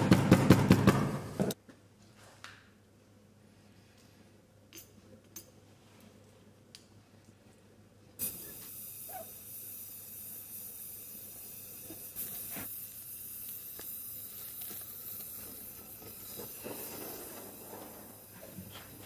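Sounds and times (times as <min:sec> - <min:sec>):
gas torch hissing: 0:08.2 - 0:19.0.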